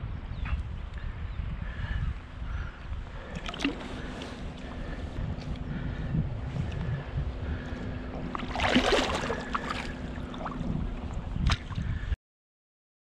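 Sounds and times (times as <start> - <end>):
wind rumbling on microphone: 0.0 - 12.2
shallow water lapping: 1.6 - 12.1
loud splash: 8.3 - 10.7.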